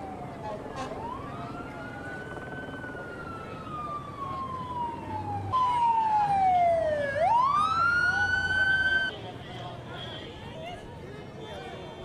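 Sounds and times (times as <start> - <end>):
emergency siren wailing: 0.0 - 9.1.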